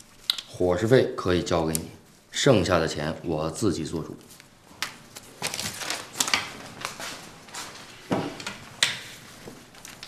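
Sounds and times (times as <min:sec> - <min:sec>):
abacus beads clicking: 0:00.1 - 0:00.6
banknotes rustling: 0:04.1 - 0:08.0, 0:09.1 - 0:10.0.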